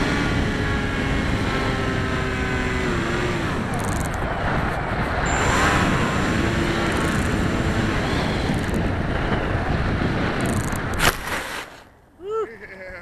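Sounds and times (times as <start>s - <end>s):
wind rushing over microphone: 0.0s - 11.8s
electric motor and propeller hum: 0.0s - 12.0s
thin high whine: 5.2s - 9.5s.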